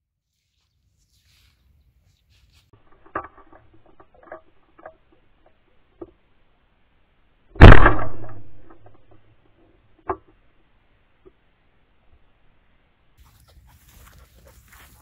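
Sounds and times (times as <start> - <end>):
faint rustles: 0.3 - 4.3, 13.2 - 15.0
shotgun shot: 7.6 - 8.8.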